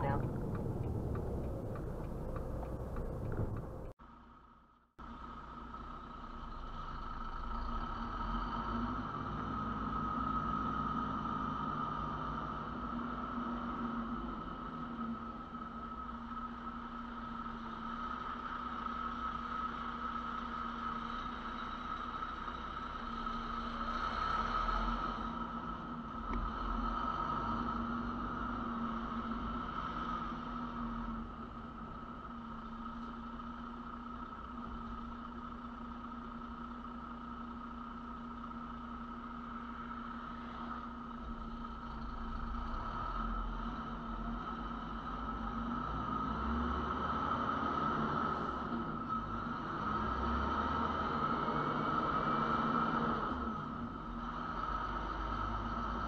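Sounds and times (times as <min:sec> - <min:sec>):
diesel truck engine droning: 0:00.0 - 0:04.0.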